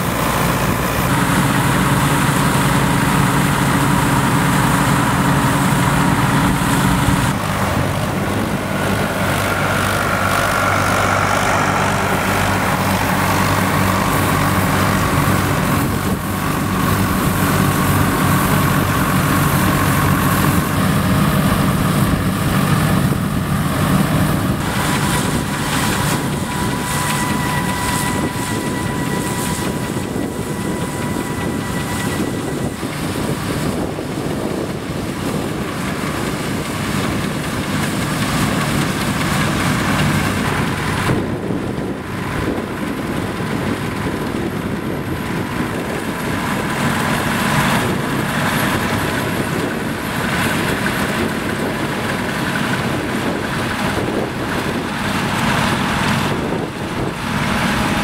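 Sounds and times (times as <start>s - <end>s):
combine threshing machinery: 0.0s - 58.0s
tractor engine running: 0.0s - 58.0s.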